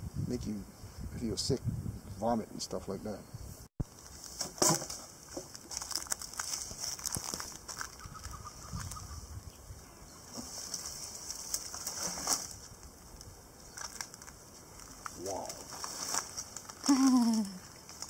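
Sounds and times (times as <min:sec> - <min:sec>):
twigs and leaves crackling: 0:03.8 - 0:09.4, 0:10.2 - 0:18.0.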